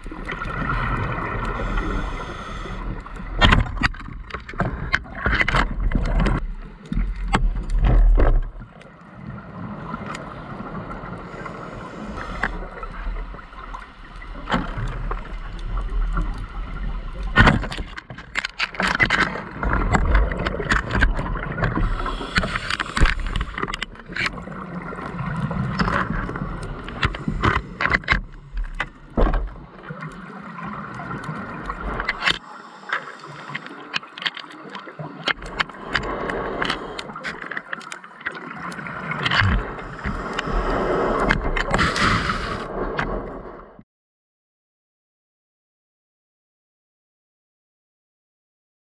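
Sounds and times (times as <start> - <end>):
bubbles gurgling: 0.0 - 3.4
regulator breathing underwater: 1.3 - 3.1, 11.2 - 12.8, 21.7 - 23.8, 39.6 - 42.7.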